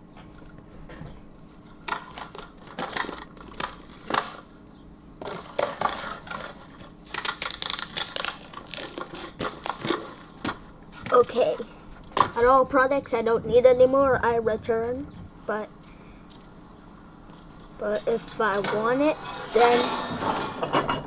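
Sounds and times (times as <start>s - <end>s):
bubble wrap and cardboard rustling: 5.2s - 11.6s.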